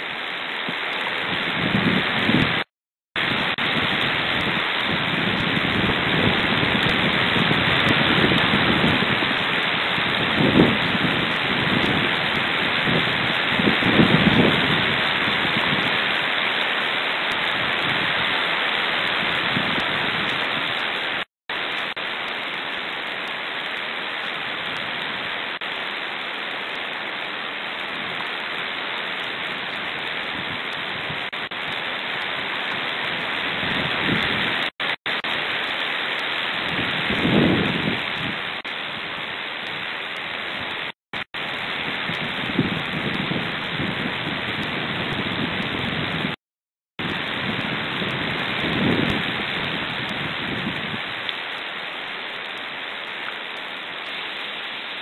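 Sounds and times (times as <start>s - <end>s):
wind hissing on microphone: 0.6s - 16.2s, 17.4s - 21.2s, 29.5s - 34.7s, 36.5s - 39.9s, 41.5s - 46.4s, 47.0s - 51.2s.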